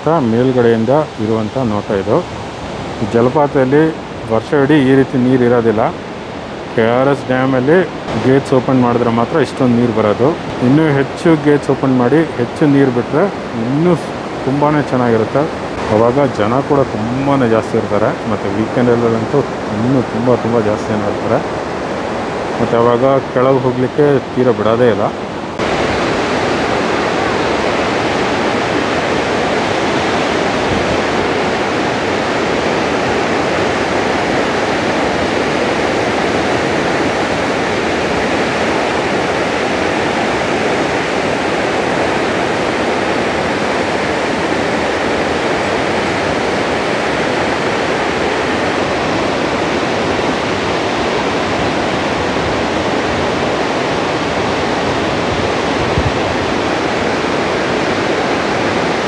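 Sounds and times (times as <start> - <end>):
waterfall rushing over rocks: 0.0 - 59.0.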